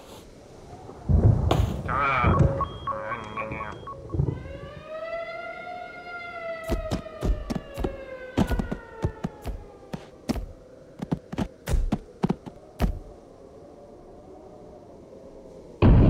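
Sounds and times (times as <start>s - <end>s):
cartoon thuds: 6.6s - 13.1s.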